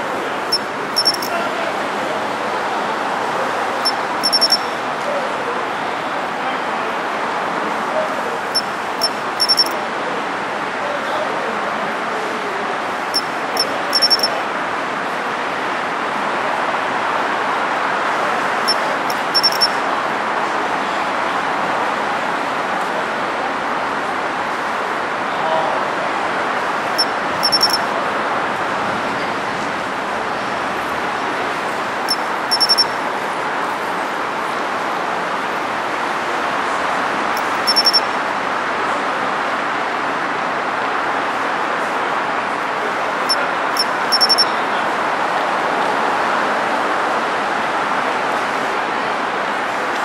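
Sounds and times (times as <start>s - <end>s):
road traffic hum: 0.0s - 50.0s
cricket chirping: 0.5s - 1.3s, 3.8s - 4.7s, 8.6s - 9.8s, 13.2s - 14.3s, 18.7s - 19.7s, 27.0s - 27.8s, 32.0s - 33.0s, 37.4s - 38.1s, 43.3s - 44.5s.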